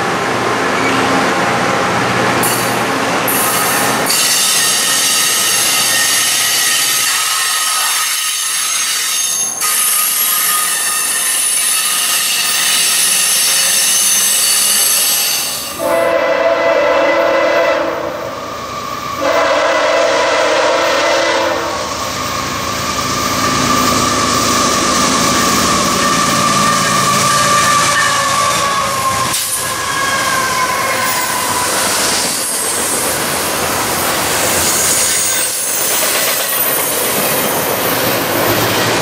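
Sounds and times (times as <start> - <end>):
freight train rumble: 0.0 - 39.0
train wheels hissing on rails: 2.4 - 16.2, 18.5 - 39.0
locomotive air horn blasts: 15.8 - 18.2, 19.2 - 21.9.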